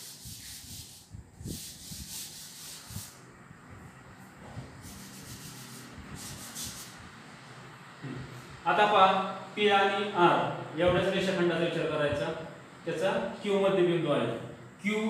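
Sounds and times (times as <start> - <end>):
duster rubbing on blackboard: 0.0 - 3.2, 4.8 - 7.0.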